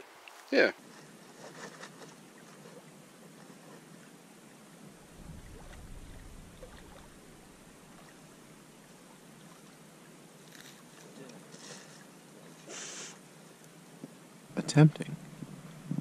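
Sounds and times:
water lapping at shore: 0:00.0 - 0:14.0
wind hiss: 0:04.9 - 0:09.1
wind rumble on microphone: 0:05.0 - 0:08.6, 0:15.2 - 0:16.0.

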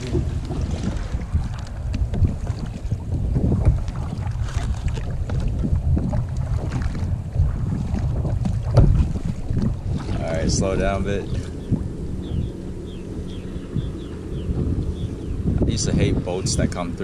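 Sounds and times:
kayak paddle splashing water: 0:00.0 - 0:12.4
wind buffeting microphone: 0:00.0 - 0:17.0.

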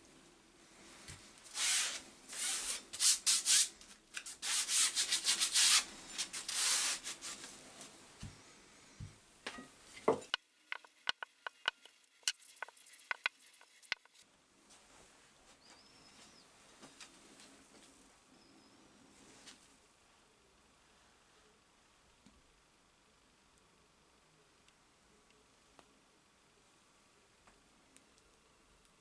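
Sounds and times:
files clicking and tapping: 0:10.2 - 0:14.2
metal files rubbing and scraping: 0:10.7 - 0:14.2.

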